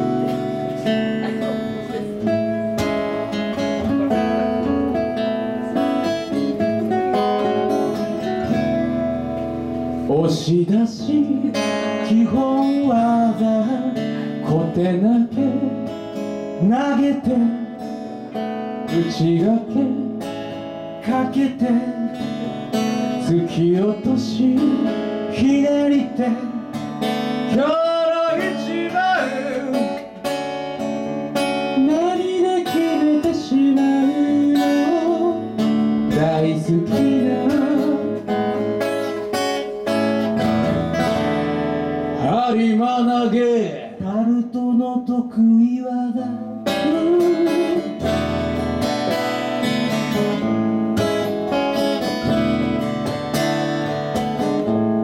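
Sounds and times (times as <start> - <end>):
acoustic guitars strumming: 0.0 - 55.0
man singing: 10.0 - 18.0, 18.8 - 30.1, 31.7 - 38.7, 42.2 - 48.3.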